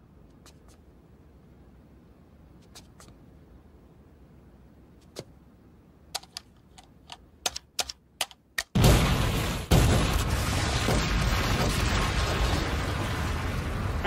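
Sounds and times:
explosion rumble: 8.8 - 14.0
loud cartoon explosion: 8.8 - 14.0.

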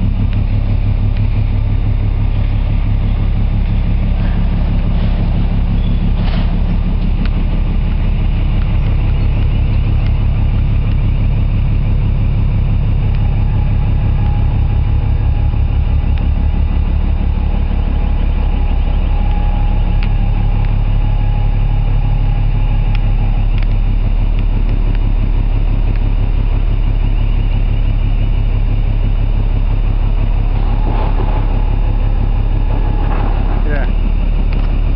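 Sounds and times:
diesel machinery hum: 0.0 - 34.9.

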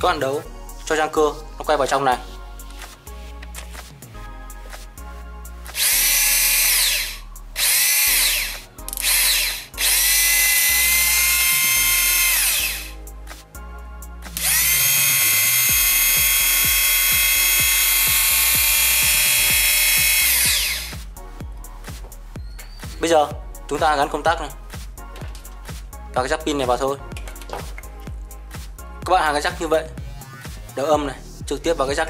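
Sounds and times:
small motor whining: 5.8 - 12.9, 14.4 - 21.0.

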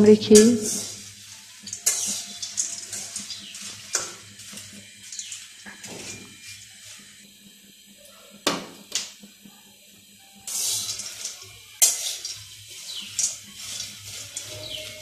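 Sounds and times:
nuts rattling and hissing: 0.0 - 7.5, 10.4 - 15.0
metal spatula scraping pan: 0.3 - 6.7, 10.5 - 15.0.

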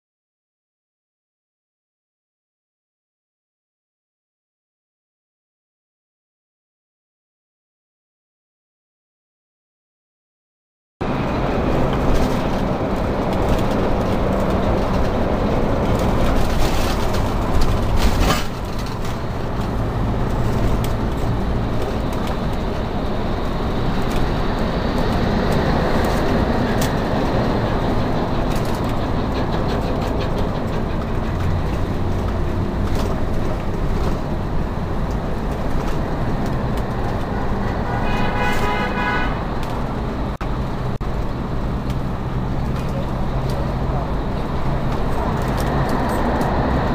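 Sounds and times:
low engine hum: 11.0 - 46.9
road noise rush and rumble: 11.0 - 46.9
rattles: 11.7 - 24.4, 25.8 - 37.2.

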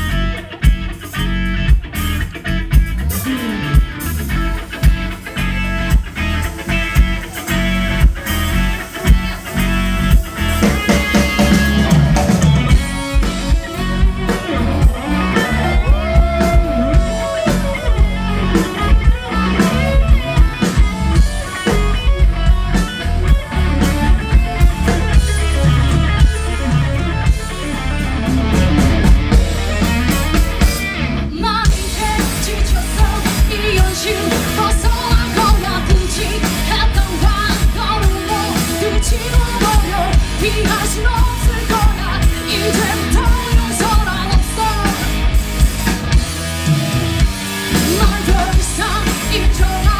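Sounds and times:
bass guitar: 0.0 - 49.9
drum kit: 0.0 - 49.9
electric guitar: 0.0 - 49.9
woman singing: 31.3 - 45.1, 47.8 - 49.9.

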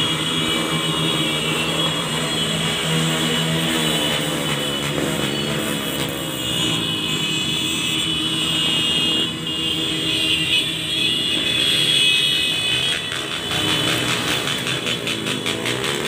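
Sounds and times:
motorcycles riding past: 12.7 - 16.0.

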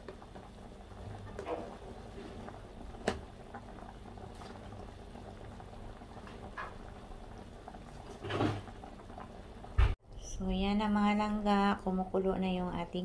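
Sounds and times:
pot of broth boiling: 0.0 - 10.0.

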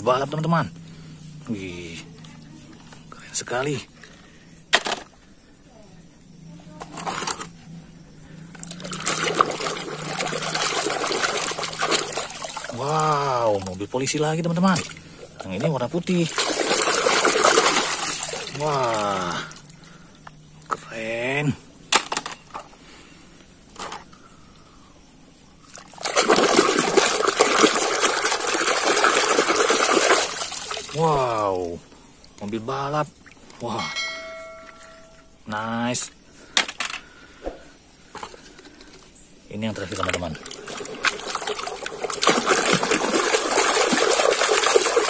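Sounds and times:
water sloshing in a basin: 6.8 - 21.4, 25.6 - 35.3, 38.0 - 45.0.

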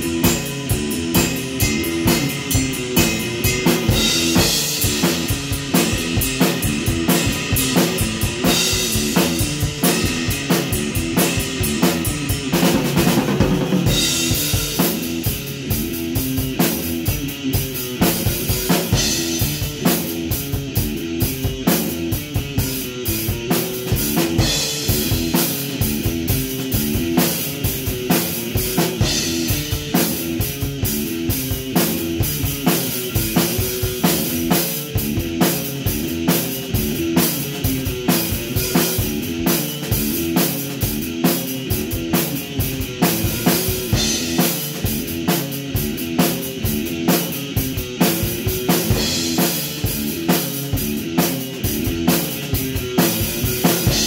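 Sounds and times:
drum kit beat: 0.0 - 54.0
electric guitar rock riff: 0.0 - 54.0.

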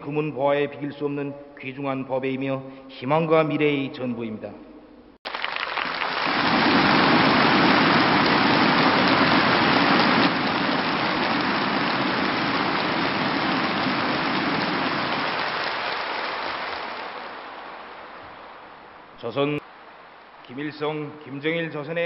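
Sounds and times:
large audience applauding: 5.3 - 18.2.

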